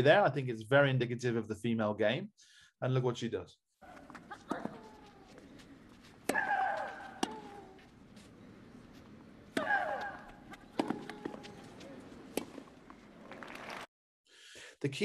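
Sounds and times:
racket hitting tennis ball: 4.0s - 12.8s
player shrieking: 6.3s - 7.8s, 9.6s - 12.0s.

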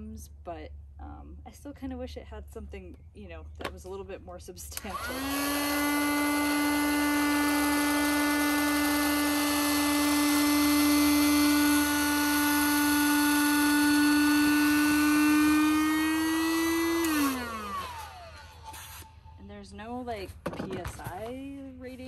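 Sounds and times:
electric air pump motor humming: 4.7s - 19.4s.

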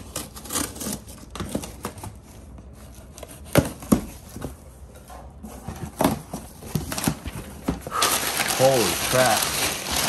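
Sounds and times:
packing tape tearing: 0.0s - 2.2s, 7.9s - 10.0s.

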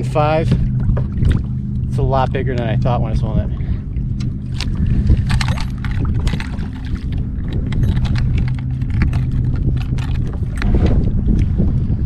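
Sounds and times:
water slapping against kayak hull: 0.0s - 3.2s
low wind rumble: 0.0s - 12.0s
clicks and knocks of handling fish: 4.1s - 11.5s.

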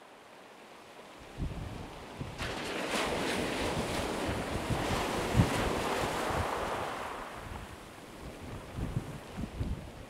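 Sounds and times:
wind: 0.0s - 10.0s
wind buffeting microphone: 1.2s - 10.0s
breaking surf: 2.2s - 7.9s.

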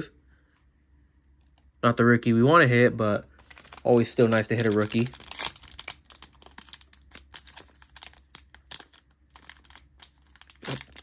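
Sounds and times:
wrapper crinkling and tearing: 3.1s - 11.0s.

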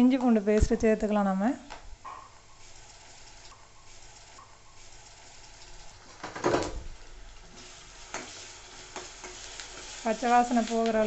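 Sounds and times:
onions frying in oil: 2.5s - 11.0s.

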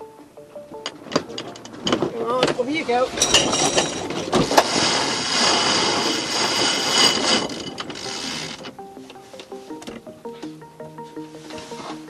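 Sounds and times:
winch ratchet clicking: 4.4s - 8.7s.

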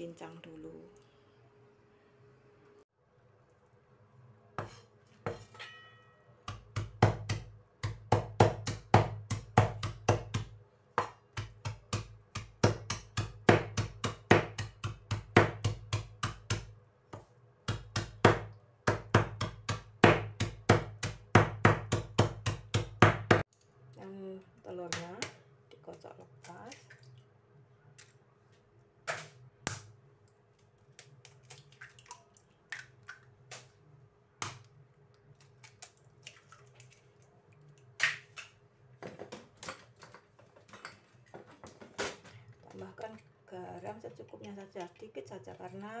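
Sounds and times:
cleaver chopping on wooden board: 6.5s - 16.7s, 17.7s - 23.4s.

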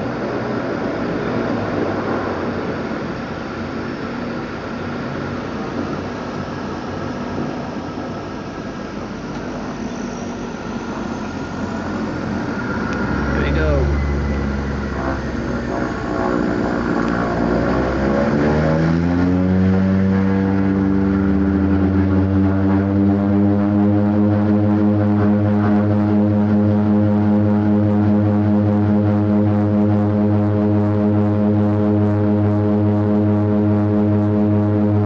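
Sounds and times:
propeller engine drone: 0.0s - 35.0s.

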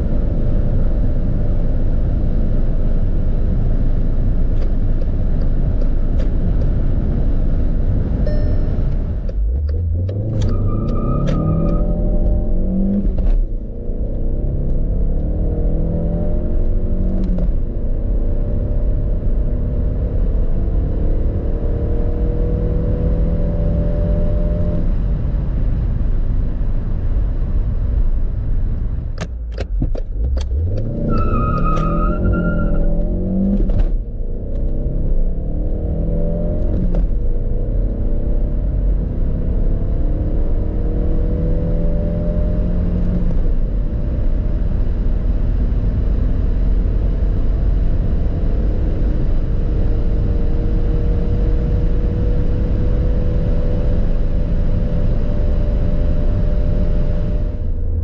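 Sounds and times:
car engine accelerating: 0.0s - 58.0s
short beep: 8.2s - 9.0s.

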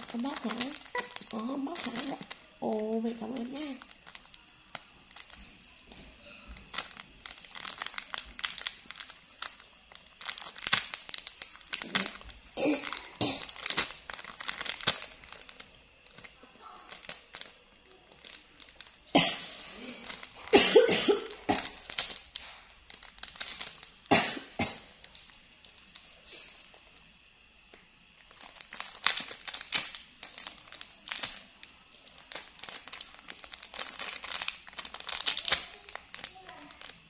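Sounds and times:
woman coughing: 12.6s - 13.5s, 19.1s - 19.5s, 20.5s - 21.8s, 24.1s - 24.9s.

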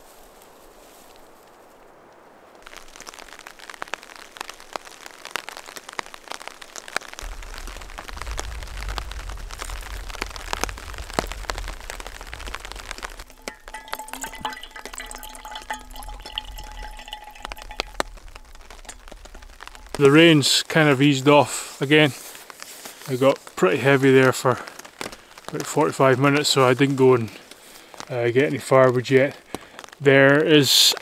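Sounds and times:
heavy rain on tarp: 0.0s - 31.0s
low rumble: 7.2s - 22.4s
water splashing into metal pot: 10.0s - 21.2s.

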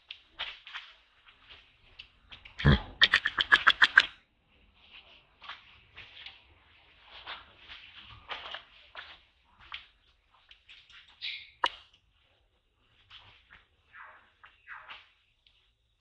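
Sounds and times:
macaque harsh pulsed calls: 2.6s - 4.1s.

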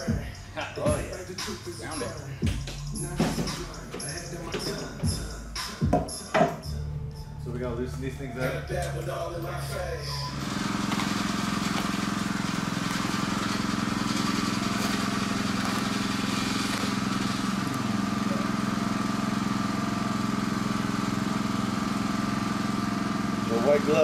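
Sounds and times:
low mechanical hum: 6.7s - 24.0s.

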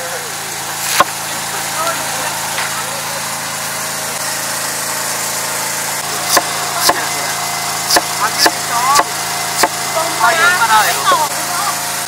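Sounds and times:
engine-like hum: 0.0s - 12.0s
knife chopping carrot on board: 6.3s - 7.0s, 7.9s - 9.8s.

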